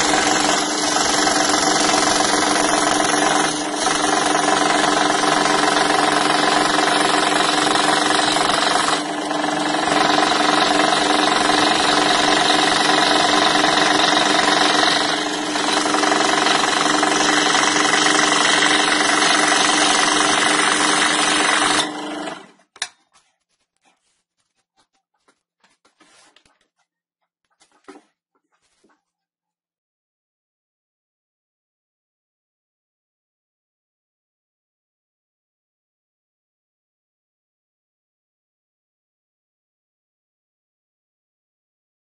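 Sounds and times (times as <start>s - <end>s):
scroll saw cutting plywood: 0.0s - 22.8s.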